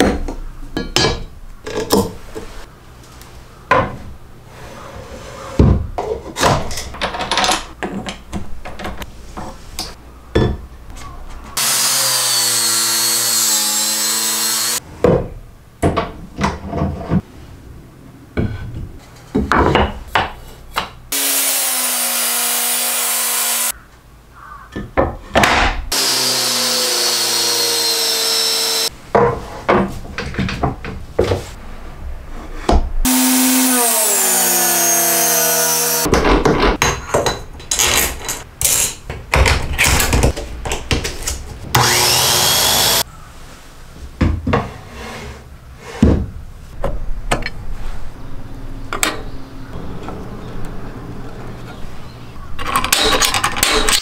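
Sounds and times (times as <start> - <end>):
angle grinder sanding: 21.2 - 23.7, 25.9 - 28.9, 33.1 - 36.1, 41.8 - 43.0
drum sander sanding wood: 26.0 - 28.9, 33.1 - 36.1, 41.8 - 43.0.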